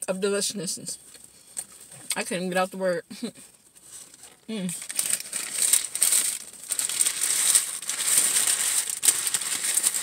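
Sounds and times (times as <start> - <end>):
paper wrapper crumpling: 3.8 - 10.0.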